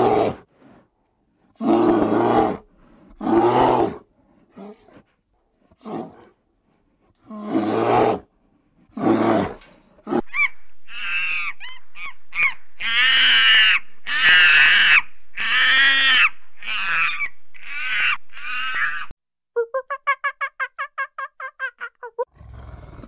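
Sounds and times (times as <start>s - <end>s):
loud animal roars: 3.2s - 4.0s, 22.3s - 23.0s.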